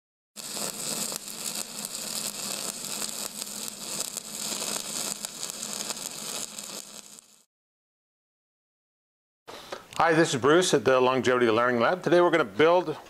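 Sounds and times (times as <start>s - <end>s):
crackling hiss: 0.4s - 7.5s
pops: 0.4s - 7.5s.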